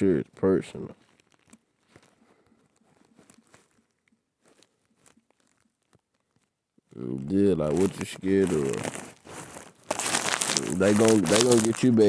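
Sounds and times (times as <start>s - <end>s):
phone tapping and rustling: 1.0s - 6.9s.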